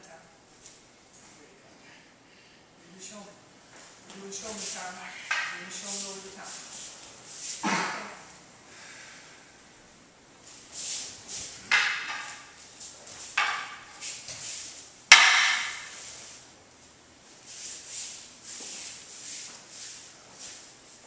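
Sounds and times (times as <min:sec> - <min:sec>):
wooden practice swords clacking: 0:05.2 - 0:05.8, 0:11.5 - 0:14.5, 0:15.1 - 0:16.0.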